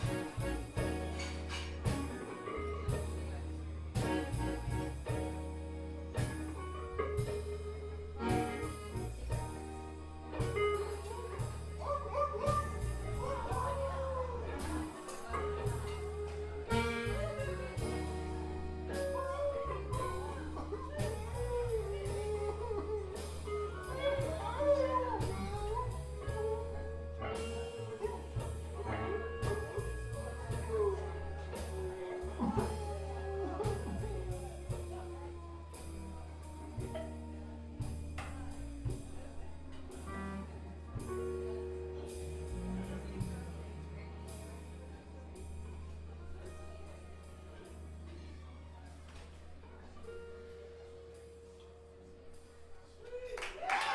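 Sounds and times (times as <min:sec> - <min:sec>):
accordion chords: 0:00.0 - 0:48.7
bass guitar: 0:00.0 - 0:53.9
electric guitar: 0:00.0 - 0:53.9.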